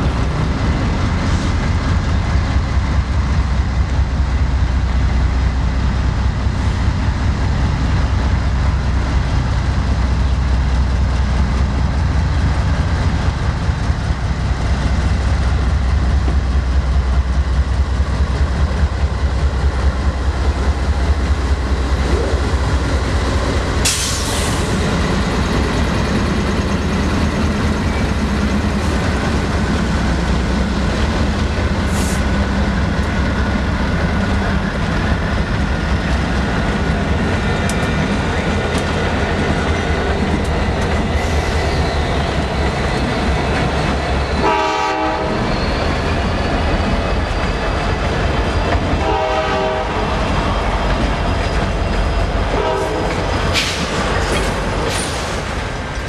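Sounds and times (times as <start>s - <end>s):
diesel locomotives rumbling: 0.0s - 56.0s
train horn: 44.4s - 45.5s, 49.0s - 50.1s, 52.5s - 53.2s.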